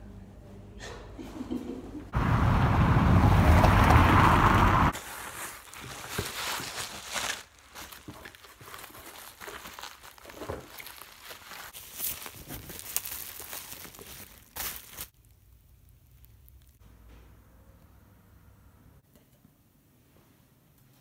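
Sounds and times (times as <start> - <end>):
bubble wrap crinkling: 5.0 - 16.8.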